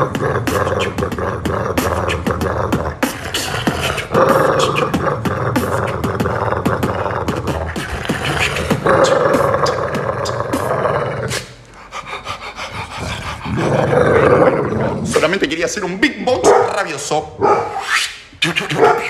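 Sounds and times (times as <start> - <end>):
person beatboxing: 0.0 - 15.5, 17.8 - 19.0.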